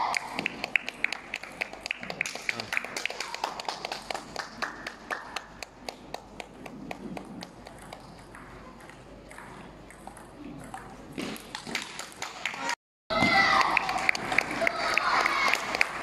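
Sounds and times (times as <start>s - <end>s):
table tennis balls clicking: 5.6s - 12.2s.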